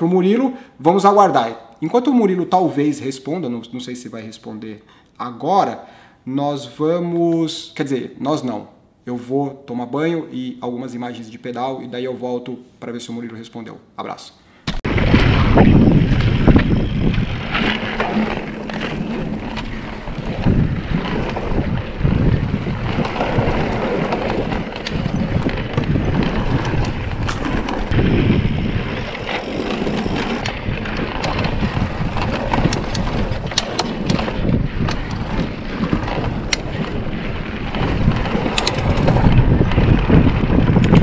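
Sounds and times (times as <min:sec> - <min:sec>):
bike clicks and rattles: 0:14.7 - 0:41.0
wind buffeting microphone: 0:14.8 - 0:41.0
tyres rumbling over wooden boards: 0:14.9 - 0:41.0.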